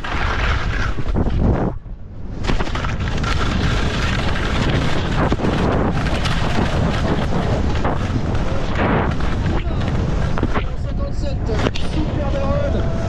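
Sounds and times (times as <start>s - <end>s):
skis scraping over hard snow: 0.0s - 1.8s, 2.4s - 12.7s
wind rushing on microphone: 0.0s - 13.0s.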